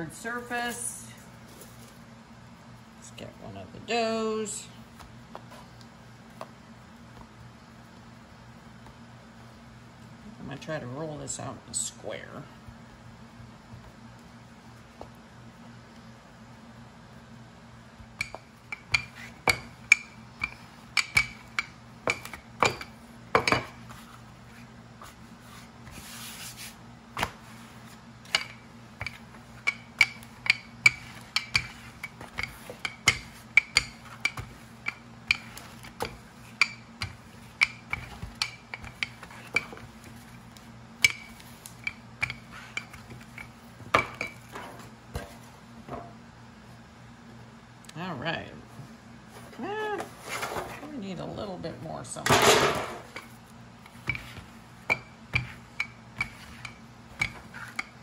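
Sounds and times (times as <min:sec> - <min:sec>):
rolling pin clacking on dough: 0:18.2 - 0:23.8, 0:28.2 - 0:39.9, 0:41.0 - 0:44.4, 0:53.1 - 0:58.0.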